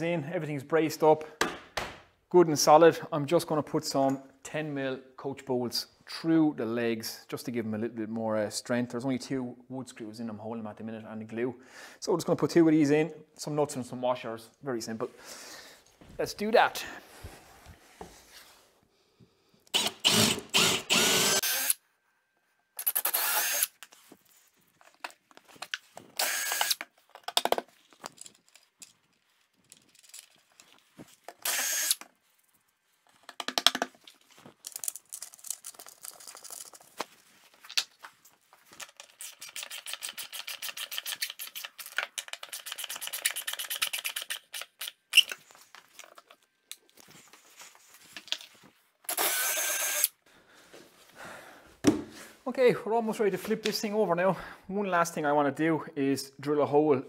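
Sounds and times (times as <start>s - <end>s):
cordless drill boring into timber: 19.7s - 21.8s, 22.8s - 23.7s, 26.2s - 26.8s, 31.4s - 32.0s, 49.1s - 50.1s.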